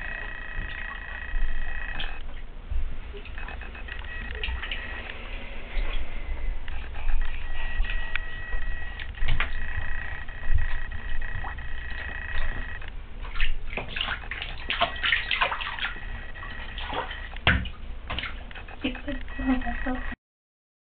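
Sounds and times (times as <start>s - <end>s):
bath water splashing: 0.0s - 18.6s.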